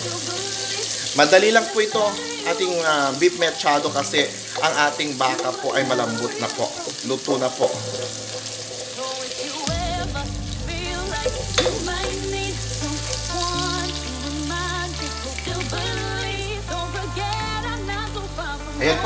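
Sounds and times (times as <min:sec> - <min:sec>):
onion and garlic sizzling in oil: 0:00.0 - 0:19.0
wooden spoon stirring: 0:01.6 - 0:09.7
background music with bass line: 0:09.7 - 0:19.0.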